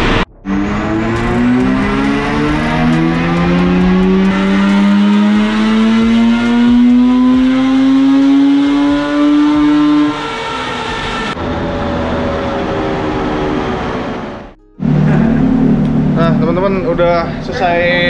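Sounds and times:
rotary engine revving under load: 0.5 - 11.4.

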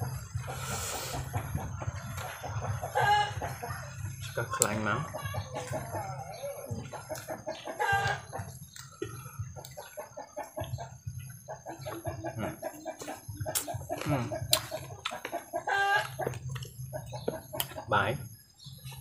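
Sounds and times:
chickens clucking: 0.0 - 19.0
chicken drawn-out call: 2.2 - 3.6, 4.6 - 8.4, 15.3 - 16.3.

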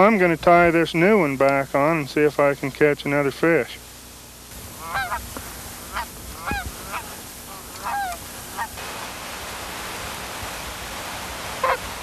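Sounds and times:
geese honking: 4.6 - 8.8, 11.5 - 12.0.

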